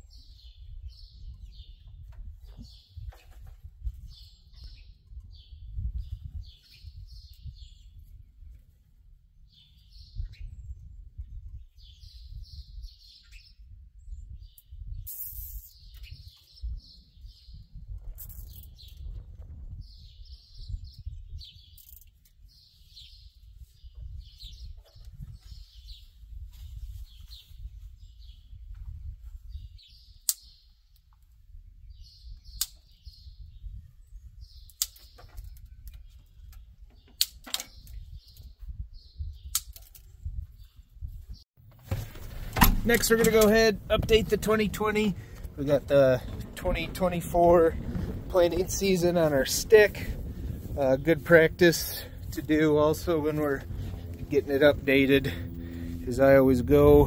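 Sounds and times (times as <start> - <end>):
songbird chirping: 0.0 - 8.8, 9.4 - 19.2, 41.6 - 57.0
low steady rumble: 41.6 - 57.0.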